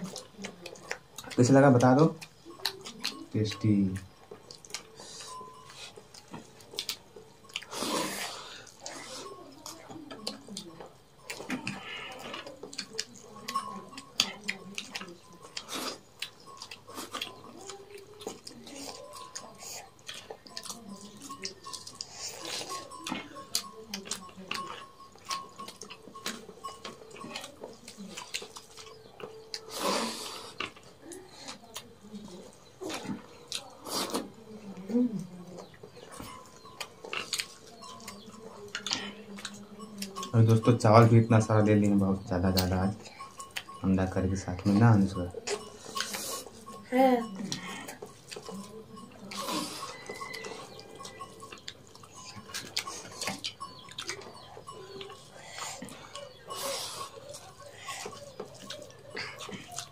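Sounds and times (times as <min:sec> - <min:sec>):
wet clicks and smacks of eating: 0:00.0 - 0:07.8, 0:08.6 - 0:46.8, 0:47.5 - 0:59.9
chewing: 0:00.0 - 0:59.9
fingers mixing rice on metal plate: 0:44.6 - 0:59.9.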